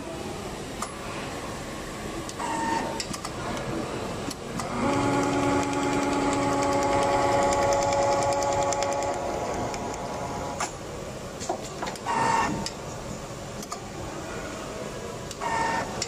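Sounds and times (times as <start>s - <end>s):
machine clicks: 2.3s - 10.8s
sewing machine stitching: 4.6s - 9.2s.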